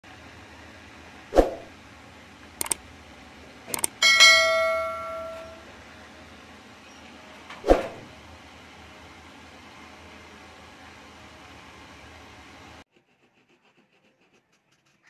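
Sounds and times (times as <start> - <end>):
mouse clicks: 3.7 - 4.0
notification bell ding: 3.8 - 5.6.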